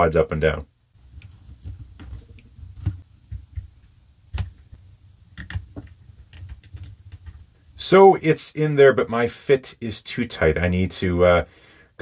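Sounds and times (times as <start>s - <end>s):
handling and rubbing noise: 1.0s - 4.8s.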